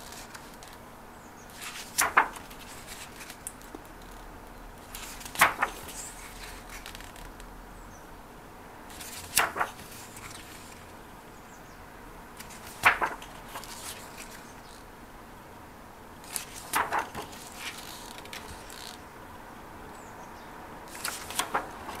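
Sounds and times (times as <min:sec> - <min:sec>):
book pages turning: 0:00.0 - 0:00.8, 0:01.5 - 0:04.2, 0:04.8 - 0:07.5, 0:08.9 - 0:10.9, 0:12.4 - 0:14.8, 0:16.2 - 0:19.0, 0:20.9 - 0:22.0.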